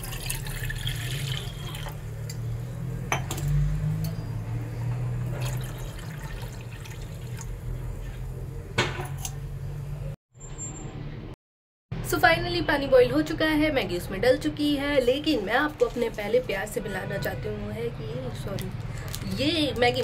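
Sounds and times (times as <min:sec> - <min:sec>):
water pouring into saucepan: 0:00.0 - 0:02.4, 0:05.2 - 0:08.4.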